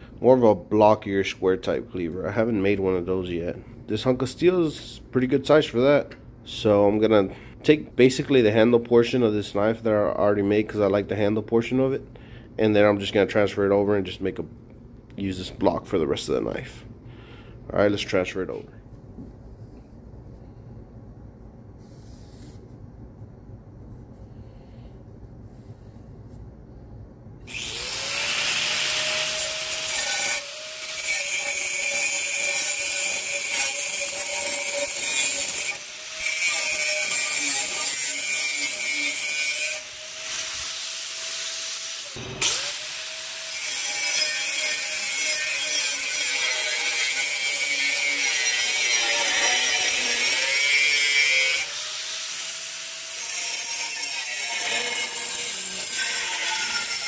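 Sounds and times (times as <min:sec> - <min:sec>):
angle grinder cutting steel: 0:27.5 - 0:57.0.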